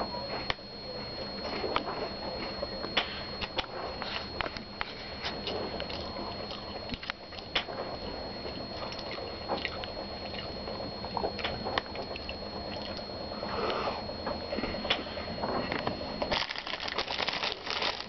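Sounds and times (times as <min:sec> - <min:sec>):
man chewing crunchy snack: 0:16.3 - 0:18.0.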